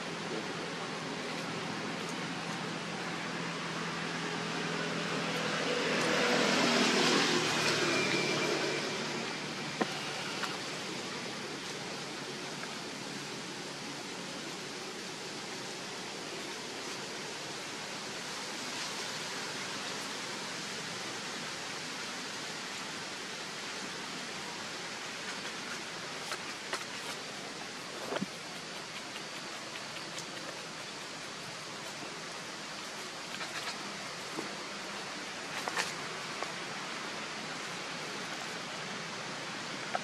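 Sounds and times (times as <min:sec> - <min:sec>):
outdoor background hiss: 0:00.0 - 0:40.0.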